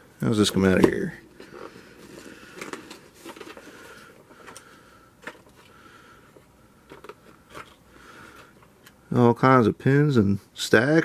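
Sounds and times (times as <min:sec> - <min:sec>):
plastic tray crinkling and clicking: 0:00.6 - 0:05.7, 0:06.8 - 0:07.8.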